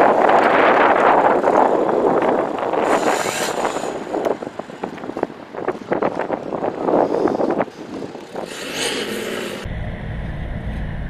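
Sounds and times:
exhaust crackles: 0:00.0 - 0:11.0
diesel engine pulling away: 0:08.3 - 0:11.0.

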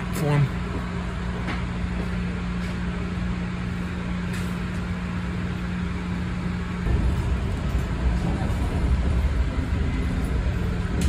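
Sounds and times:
train rumbling from inside coach: 0:05.9 - 0:11.0
steady low tone: 0:06.8 - 0:11.0.

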